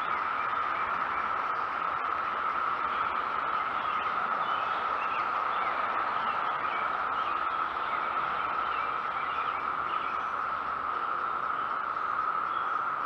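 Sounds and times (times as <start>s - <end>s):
cicadas droning: 0.0s - 13.0s
faint bird chirps: 2.9s - 13.0s.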